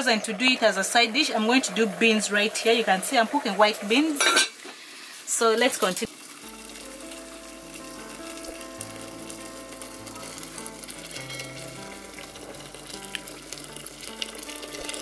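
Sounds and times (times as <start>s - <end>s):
hot water pouring into metal pot: 0.0s - 15.0s
slow background music: 6.2s - 15.0s.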